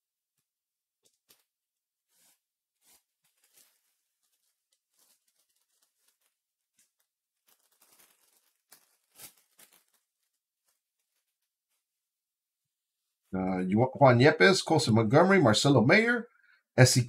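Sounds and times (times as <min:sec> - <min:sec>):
trading cards and packaging rustling: 0:01.0 - 0:11.9.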